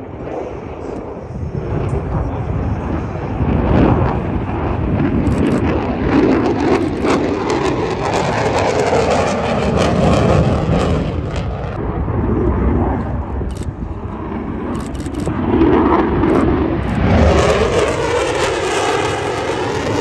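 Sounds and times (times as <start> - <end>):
fighter jet flying past: 0.0 - 20.0.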